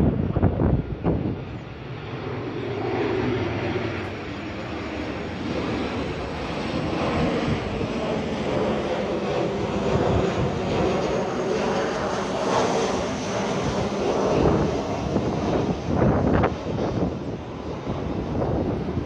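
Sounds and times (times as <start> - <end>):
jet airliner flying overhead: 0.0 - 19.0.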